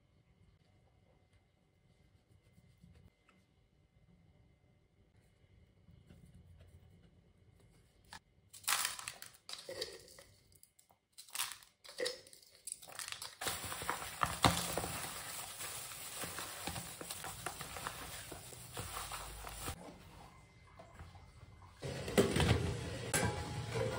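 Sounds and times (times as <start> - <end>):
plastic glove crinkling: 8.6 - 19.8.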